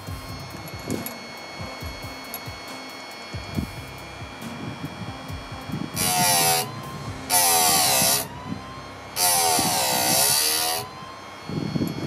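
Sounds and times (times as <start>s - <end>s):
grinding wheel on saw chain: 5.7s - 12.0s.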